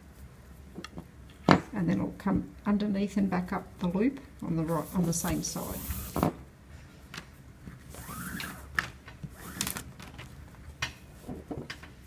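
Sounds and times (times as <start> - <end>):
cord rubbing through loops: 7.9 - 10.1.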